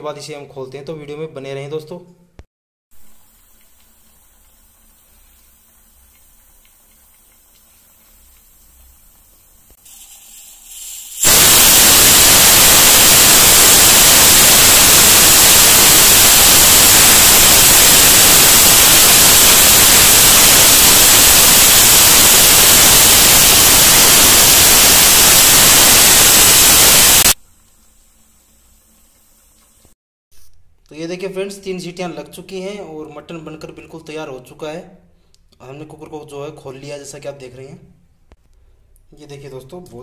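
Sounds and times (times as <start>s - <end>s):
pressure cooker whistling: 9.9s - 27.4s.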